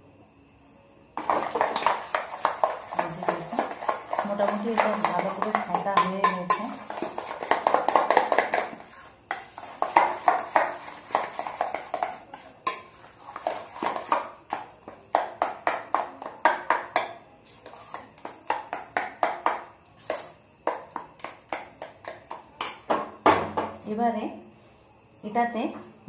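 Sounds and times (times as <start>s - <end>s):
spoon scraping steel bowl: 1.2s - 14.2s.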